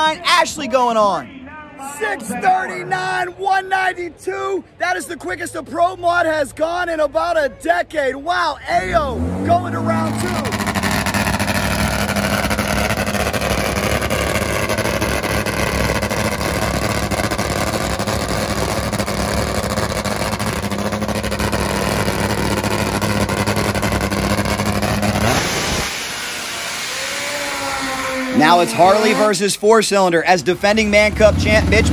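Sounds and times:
motorcycle engines running: 8.8 - 29.6, 30.4 - 31.9
rushing noise: 21.3 - 29.4.

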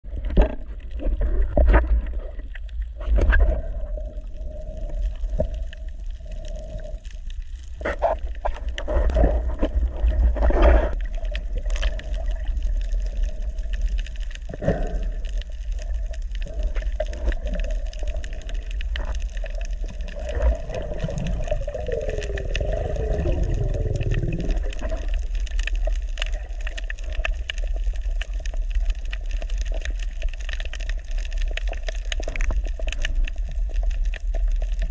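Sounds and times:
low underwater rumble: 0.0 - 34.9
gurgling bubbles: 0.1 - 34.9.

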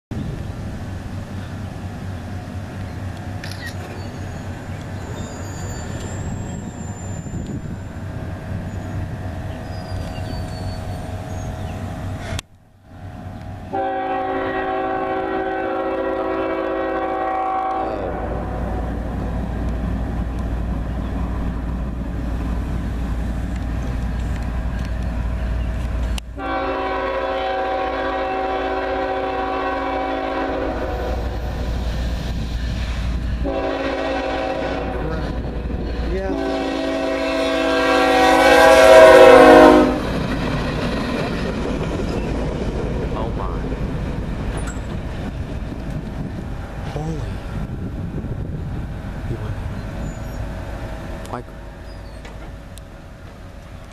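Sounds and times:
diesel locomotive rumble: 0.1 - 53.9
locomotive air horn blasts: 13.7 - 18.6, 26.4 - 31.5, 33.4 - 35.4, 36.3 - 40.1.

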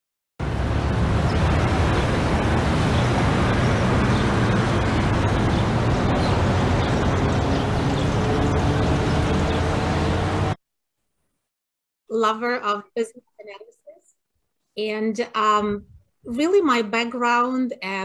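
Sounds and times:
street traffic rumble: 0.4 - 10.6.

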